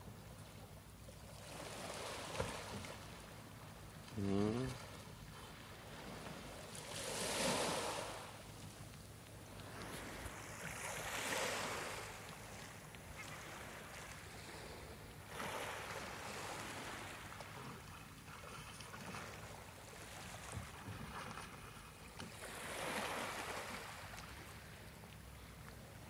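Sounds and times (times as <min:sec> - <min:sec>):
waves washing onto pebble beach: 0:06.8 - 0:08.3.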